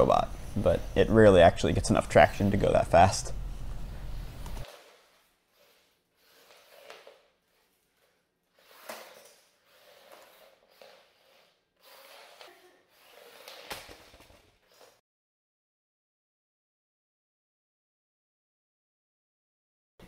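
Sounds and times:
robot motors scurrying on wood floor: 0:04.4 - 0:15.0.

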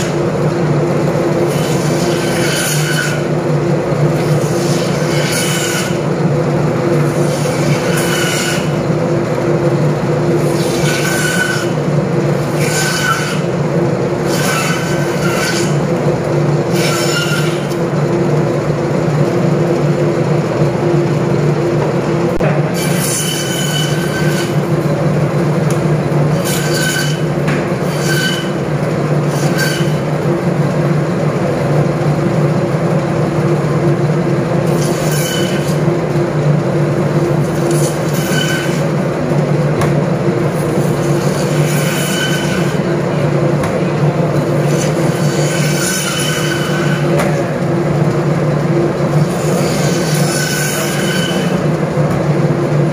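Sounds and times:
band saw humming: 0:00.0 - 0:31.4, 0:34.6 - 0:52.9
saw blade squealing on bone: 0:10.6 - 0:11.8, 0:12.6 - 0:13.5, 0:16.7 - 0:17.7, 0:26.4 - 0:28.6, 0:29.3 - 0:30.1, 0:44.6 - 0:47.1.

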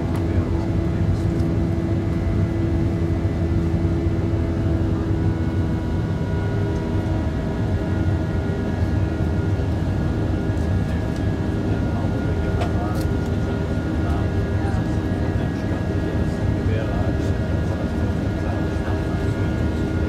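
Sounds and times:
jet engines low rumble: 0:00.0 - 0:20.0.

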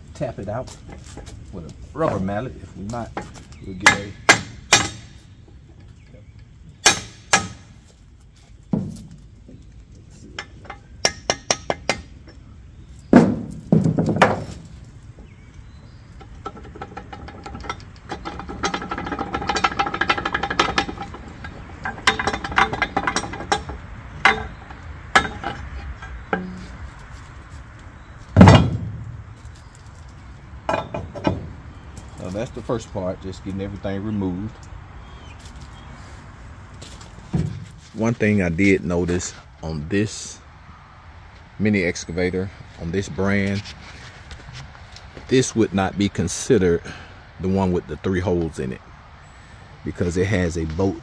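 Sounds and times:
steel parts clinking and scraping: 0:16.1 - 0:27.3, 0:28.2 - 0:33.0
heavy thump: 0:28.3 - 0:29.4, 0:37.2 - 0:37.9.

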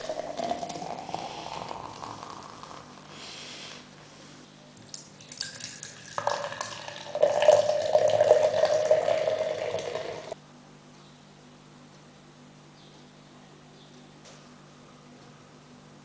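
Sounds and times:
water drips: 0:04.8 - 0:10.4.

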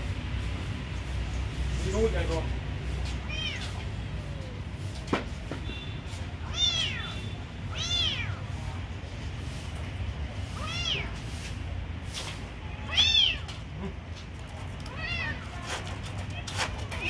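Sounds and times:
kittens meowing: 0:03.2 - 0:04.6, 0:06.4 - 0:08.4, 0:10.6 - 0:11.1, 0:12.8 - 0:13.9, 0:14.9 - 0:15.6.

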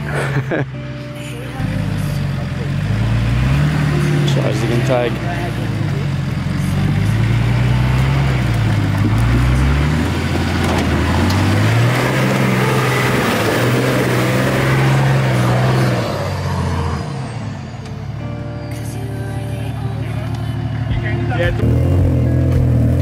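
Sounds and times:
off-road vehicle engine revving: 0:01.4 - 0:18.3, 0:19.8 - 0:23.0
wheels spinning in loose soil: 0:04.6 - 0:11.8.

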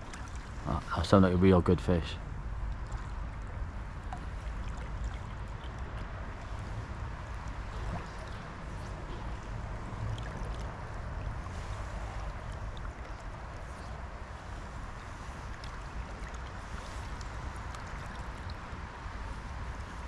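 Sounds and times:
river water rushing: 0:02.2 - 0:20.0.

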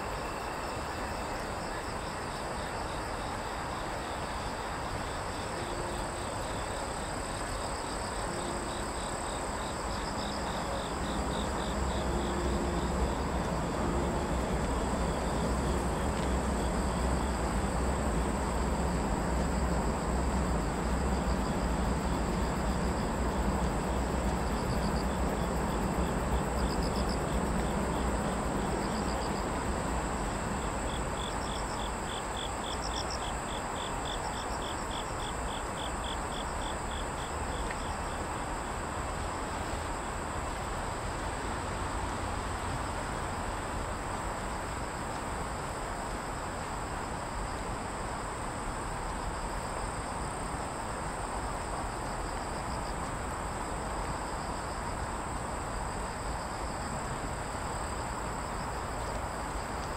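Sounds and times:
insect pulsed call: 0:00.0 - 0:43.1
crickets chirping: 0:00.0 - 0:59.9
steady rushing background noise: 0:00.0 - 0:59.9.

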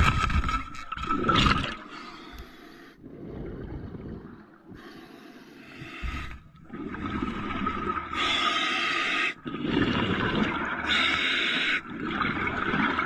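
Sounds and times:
exhaled bubbles rushing: 0:00.0 - 0:02.0, 0:03.0 - 0:04.9, 0:06.1 - 0:08.4, 0:09.4 - 0:11.1, 0:11.8 - 0:13.0
diver inhaling through regulator: 0:08.1 - 0:09.9.

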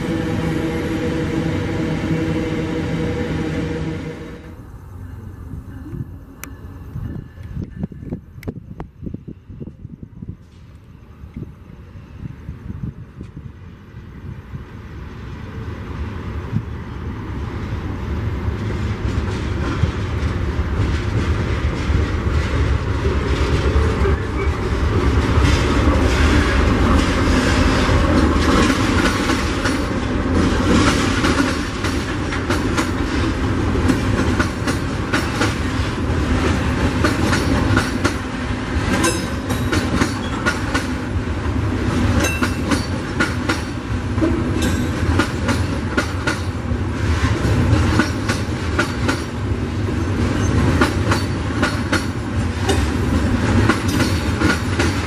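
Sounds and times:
diesel locomotive passing: 0:00.0 - 0:55.0
train wheels clickety-clack: 0:18.5 - 0:41.1, 0:41.9 - 0:55.0.

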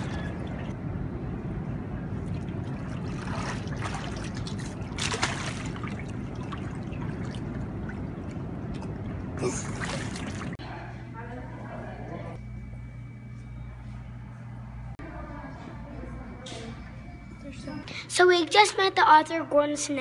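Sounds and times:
hot tub jets churning water: 0:00.0 - 0:01.1, 0:01.9 - 0:10.6
child splashing in water: 0:02.7 - 0:07.9, 0:09.4 - 0:10.6.

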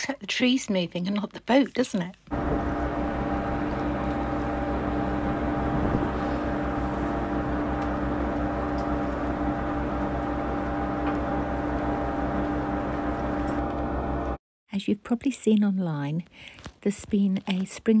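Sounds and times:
boat engine droning: 0:02.3 - 0:14.4.

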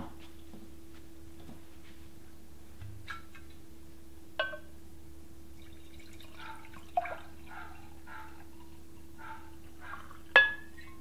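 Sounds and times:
glass clink: 0:04.4 - 0:04.7, 0:10.0 - 0:11.0
wine glugging into a glass: 0:05.6 - 0:07.5.

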